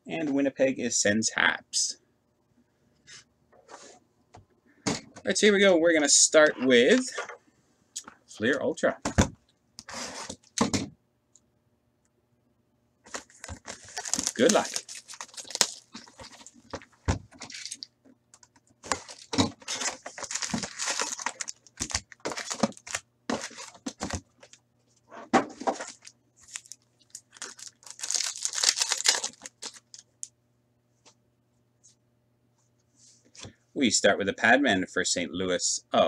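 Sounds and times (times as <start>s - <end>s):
wrappers tearing and rustling: 13.1s - 16.8s, 17.4s - 17.9s, 18.9s - 24.6s, 25.8s - 30.0s
plastic wrap crinkling: 13.1s - 17.9s, 18.8s - 24.6s, 25.8s - 30.1s.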